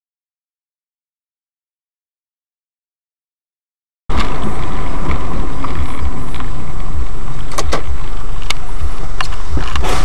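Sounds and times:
distorted car engine and road noise: 4.1 - 10.0
low pulsing: 4.1 - 10.0.

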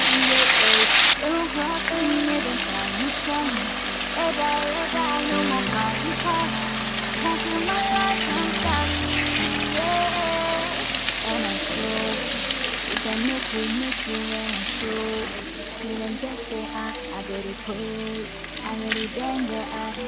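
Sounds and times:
background music: 0.0 - 20.0.

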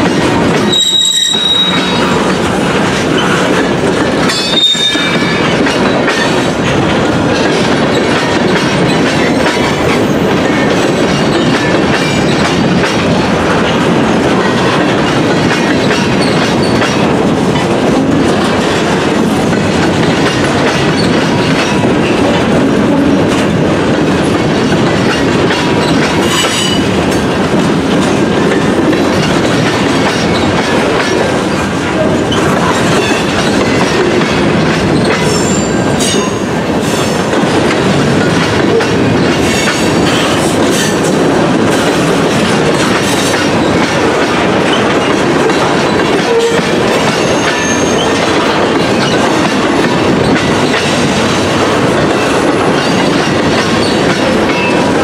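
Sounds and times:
clickety-clack of train trucks: 0.0 - 55.0
train wheels rumbling on rail: 0.0 - 55.0
high-pitched wheel squeals: 0.7 - 2.1.

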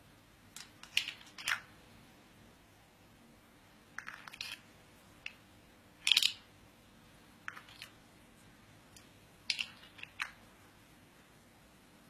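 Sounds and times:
plastic lids clicking and rattling: 0.6 - 1.7, 4.0 - 4.6, 6.0 - 6.5, 9.5 - 10.4.

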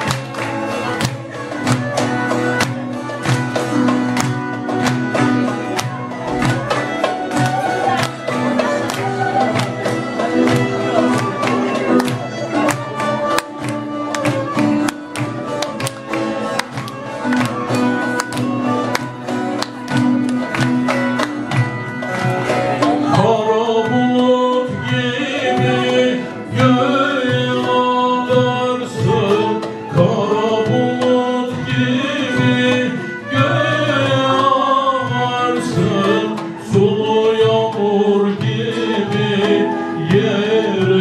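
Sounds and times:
folk song with lute and drum: 0.0 - 41.0
rhythmic hand clapping: 0.0 - 41.0
man singing: 22.7 - 41.0.

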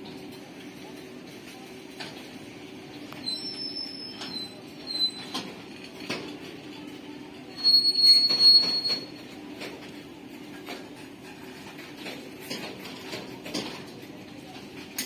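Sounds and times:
high-pitched wheel squeal: 3.2 - 5.3, 7.6 - 9.2.

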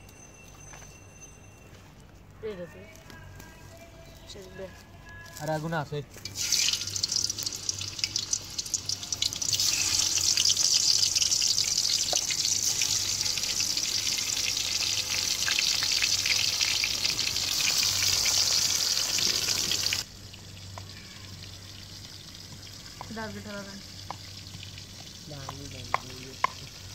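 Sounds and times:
fish sizzling in hot oil: 6.2 - 26.9.

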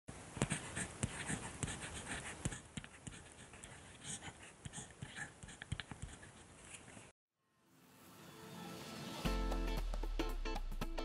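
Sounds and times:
pen scratching on paper: 0.4 - 7.0.

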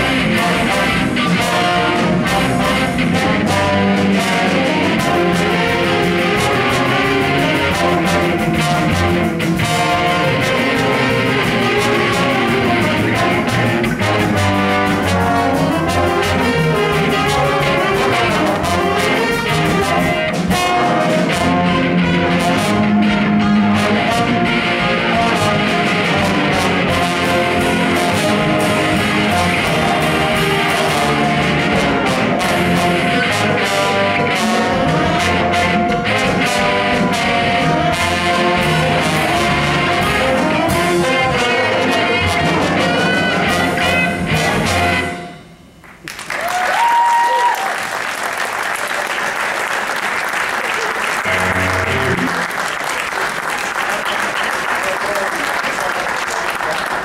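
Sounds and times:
jazz band playing: 0.0 - 45.8, 46.5 - 57.0
audience applauding: 45.8 - 57.0.

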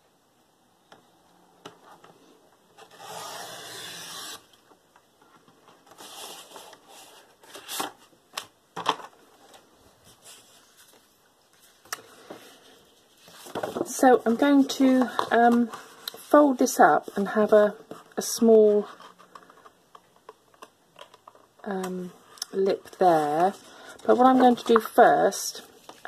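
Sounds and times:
paper trimmer blade cutting: 2.9 - 4.4
paper rustling: 10.0 - 16.3.

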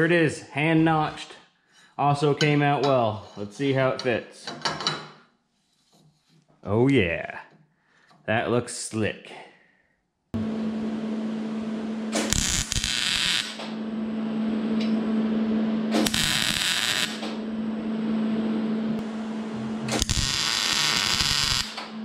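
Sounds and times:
welder hum: 10.4 - 22.0
welding arc sizzling: 12.1 - 13.8, 15.9 - 17.4, 19.0 - 22.0.

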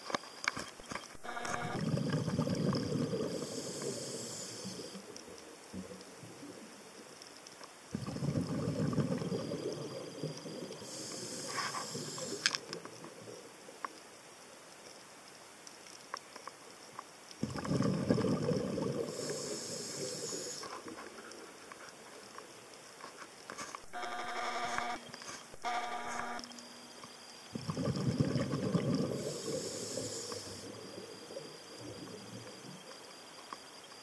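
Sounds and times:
bubbles burbling: 1.3 - 3.7, 7.9 - 10.8, 17.4 - 19.3, 27.6 - 29.6
diver breathing through regulator: 2.7 - 5.1, 10.8 - 12.6, 18.7 - 20.8, 27.6 - 30.7.

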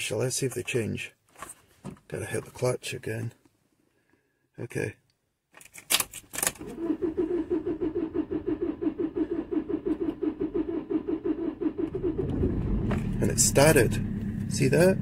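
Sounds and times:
diesel engine cranking and starting: 6.6 - 15.0.

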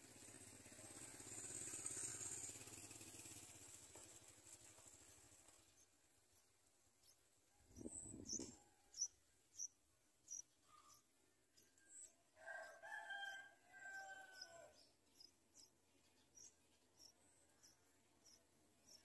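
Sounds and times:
rustle: 0.0 - 6.8
nestlings peeping: 5.5 - 12.1, 14.3 - 19.0.

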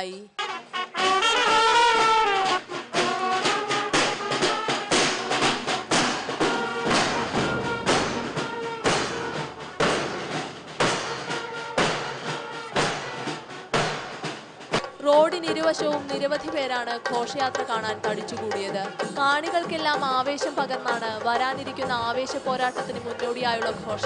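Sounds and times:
brass band melody: 0.3 - 14.7
bass drums beating: 1.3 - 20.4.

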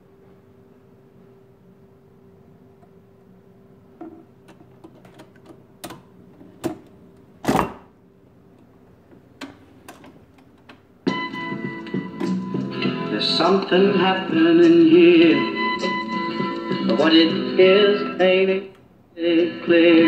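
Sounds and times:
faint hum: 0.0 - 20.0
turntable clicks and clunks: 4.0 - 7.8, 8.6 - 10.9
rock song from small speaker: 11.1 - 20.0.

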